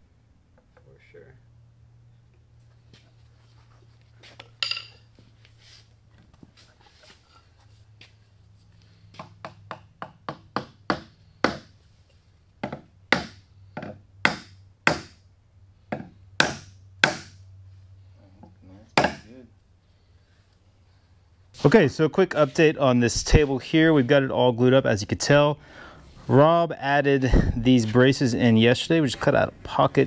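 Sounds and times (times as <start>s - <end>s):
mallet striking wooden wedge: 9.2s - 11.7s, 12.6s - 15.2s, 15.9s - 17.4s, 19.0s - 19.3s.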